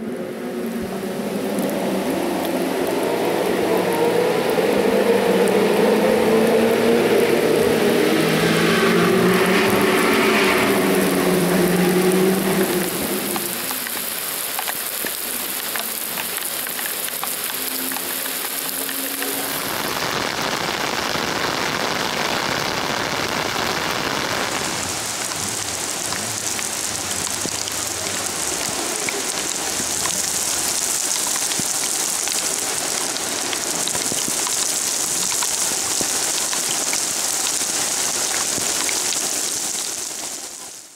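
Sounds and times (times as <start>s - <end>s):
car engine: 0.0s - 20.0s, 23.4s - 34.1s
heavy rain on road: 0.0s - 40.9s.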